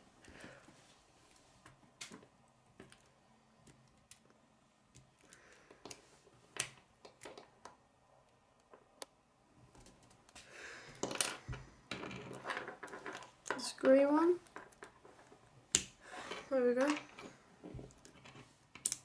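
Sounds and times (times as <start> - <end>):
plastic pieces clicking together: 17.9 - 19.0.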